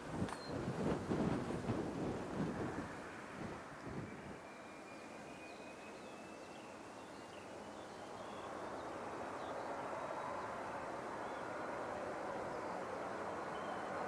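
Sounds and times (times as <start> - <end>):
faint bird chirps: 3.8 - 11.7, 12.3 - 14.0.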